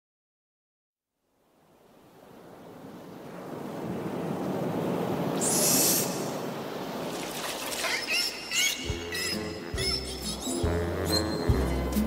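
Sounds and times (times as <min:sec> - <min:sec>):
ocean surf: 0:01.4 - 0:12.0
wave breaking in a hiss: 0:03.1 - 0:08.6.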